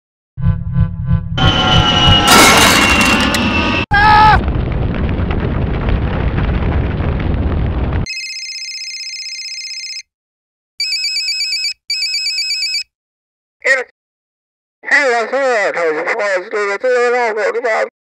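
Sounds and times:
fire burning rumble: 1.4 - 8.1
trilling telephone-like rings: 8.1 - 10.1, 10.8 - 12.9.

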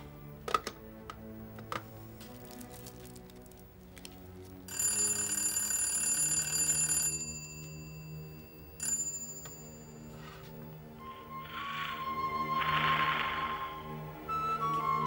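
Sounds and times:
telephone bell ringing: 4.7 - 10.6.

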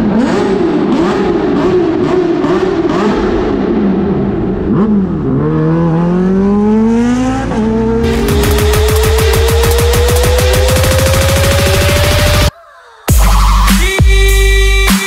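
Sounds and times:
motorcycle engine revving: 0.0 - 12.5
electronic music with rising synth: 5.5 - 15.0.

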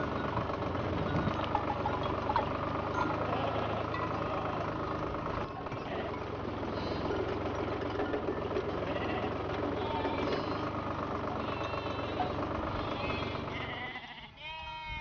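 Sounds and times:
vehicle engine drone: 0.0 - 14.0.

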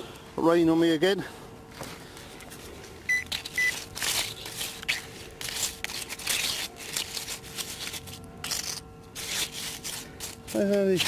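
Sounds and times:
metal detector beep: 3.1 - 3.8.

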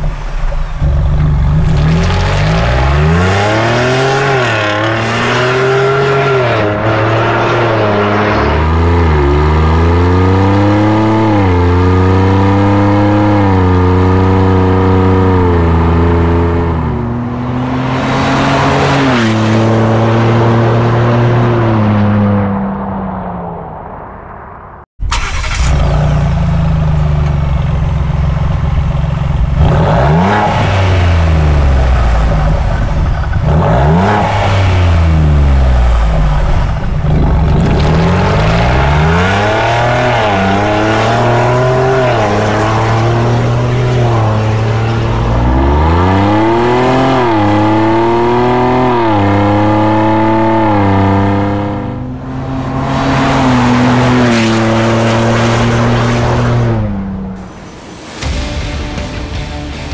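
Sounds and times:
engine idling and revving: 0.0 - 23.4, 25.0 - 59.9.

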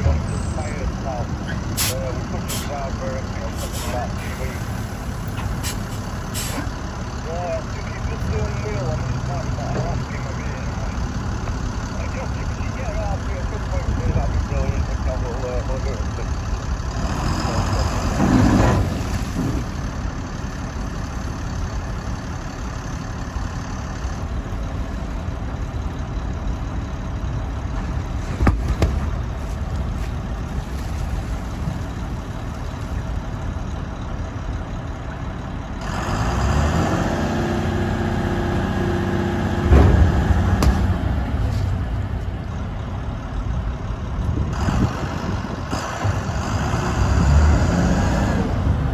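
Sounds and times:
diesel engine running: 0.0 - 48.9
heavy clunk: 28.4 - 29.2, 39.6 - 41.7
sharp knock: 40.6 - 40.9.

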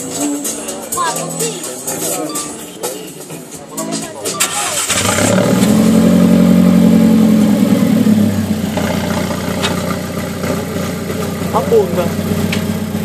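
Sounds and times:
car engine idling: 4.4 - 13.0.

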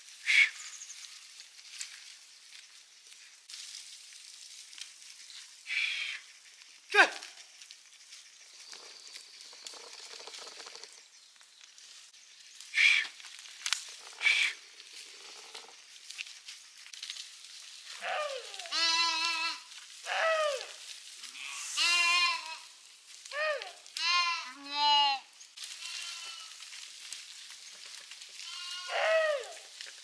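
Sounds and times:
sheep bleating: 18.0 - 20.6, 21.2 - 22.7, 24.0 - 26.6, 28.4 - 29.5.

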